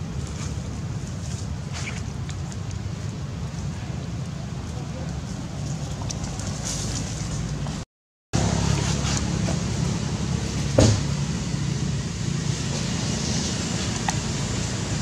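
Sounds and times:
low motor hum: 0:08.4 - 0:15.0.

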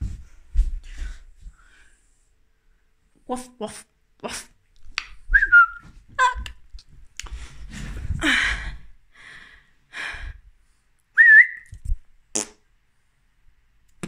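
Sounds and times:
short whistled note: 0:11.2 - 0:11.7.

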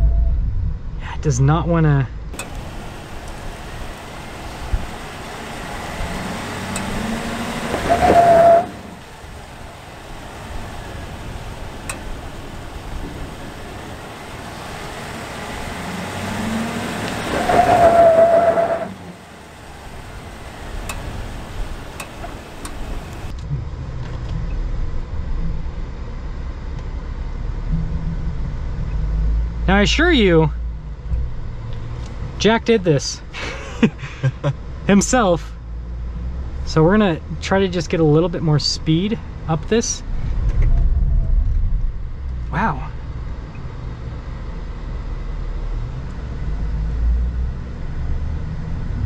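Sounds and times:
truck engine revving: 0:02.3 - 0:23.3.

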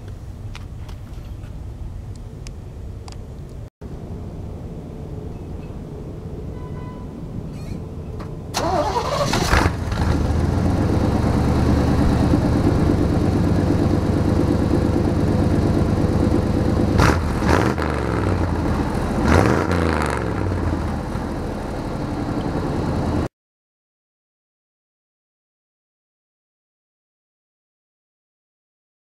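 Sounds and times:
truck engine running and revving: 0:08.6 - 0:23.3.

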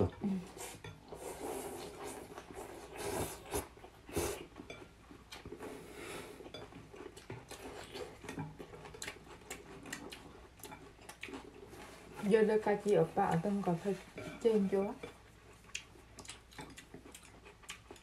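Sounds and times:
chewing: 0:00.0 - 0:18.0
people slurping noodles: 0:00.4 - 0:04.5.

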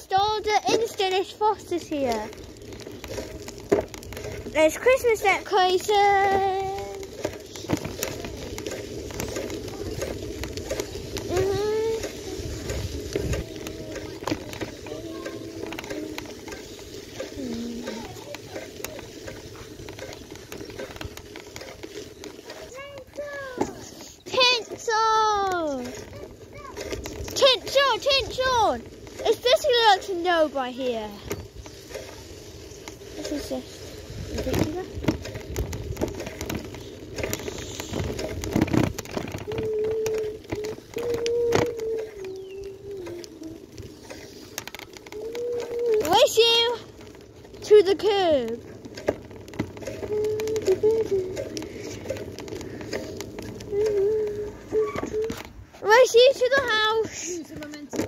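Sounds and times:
bicycle tyres on frosty pavement: 0:00.0 - 0:58.0.

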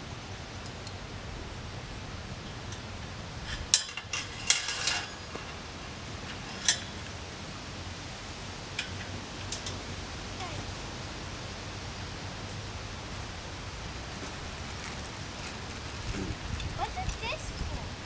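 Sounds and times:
metal parts clinking: 0:03.8 - 0:05.6.

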